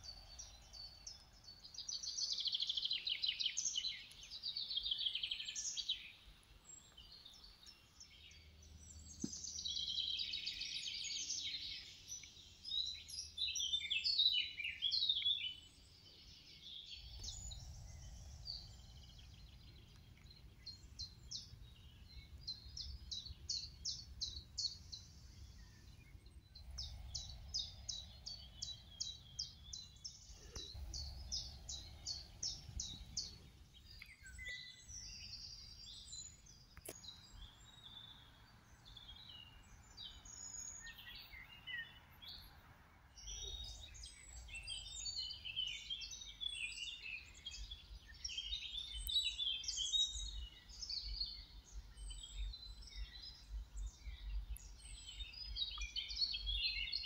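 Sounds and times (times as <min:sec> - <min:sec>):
songbirds trilling: 0:00.0 - 0:57.0
low background rumble: 0:16.9 - 0:34.2.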